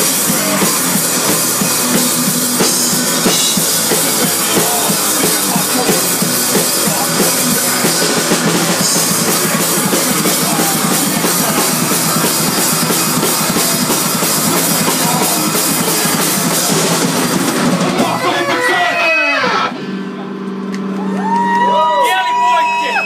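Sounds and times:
vocals sung into a microphone: 0:00.0 - 0:01.1, 0:03.9 - 0:13.0, 0:14.5 - 0:18.7
drum kit: 0:00.0 - 0:19.7
electric guitar: 0:00.0 - 0:21.6.

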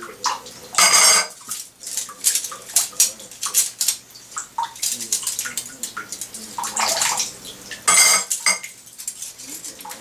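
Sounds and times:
water splash: 0:00.2 - 0:08.8
metal forks clinking: 0:00.8 - 0:04.0, 0:07.9 - 0:10.0.

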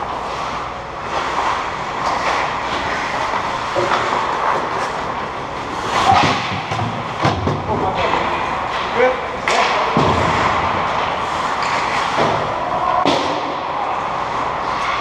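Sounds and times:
skates scraping on ice: 0:00.0 - 0:15.0
stick and puck clicks on ice: 0:01.0 - 0:07.6, 0:10.9 - 0:13.5.

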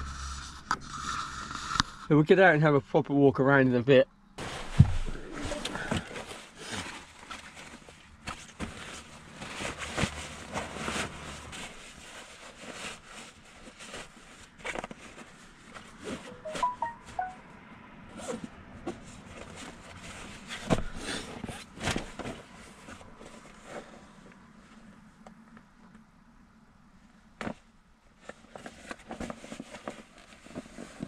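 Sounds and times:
sleeping bag fabric rustling: 0:04.4 - 0:16.3.

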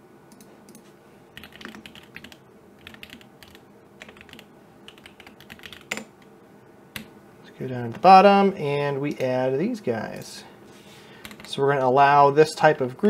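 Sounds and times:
typing on computer keyboard: 0:01.4 - 0:06.1, 0:11.2 - 0:11.5.

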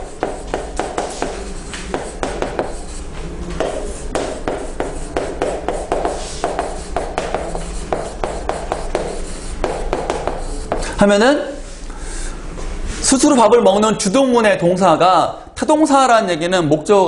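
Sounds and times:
chalk tapping and scratching: 0:00.0 - 0:11.0.

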